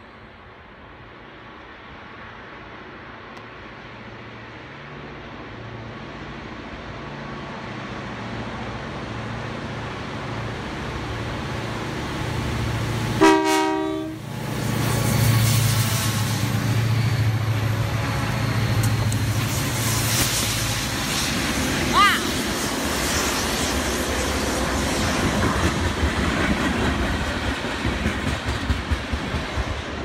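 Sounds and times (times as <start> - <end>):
diesel locomotives rumbling: 0.0 - 30.0
train horn blast: 13.2 - 14.3.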